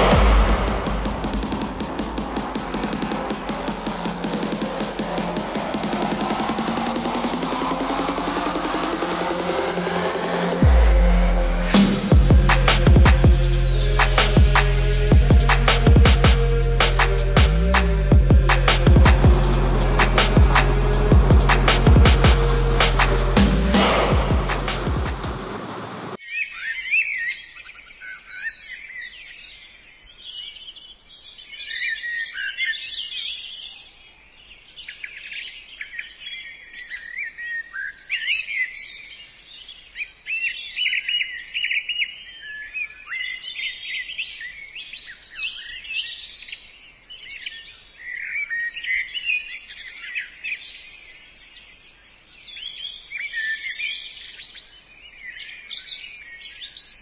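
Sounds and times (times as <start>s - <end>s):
songbirds chirping and warbling: 26.2s - 57.0s.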